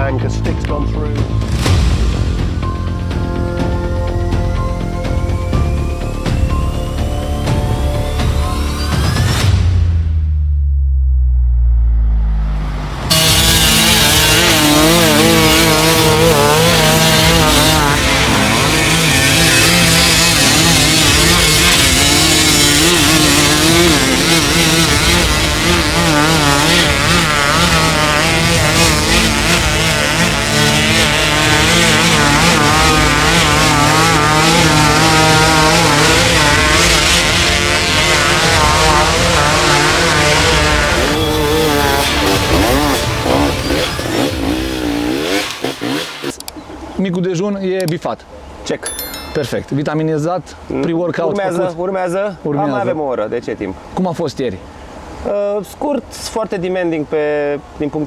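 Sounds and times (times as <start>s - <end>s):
dirt bike engines revving: 12.6s - 46.9s.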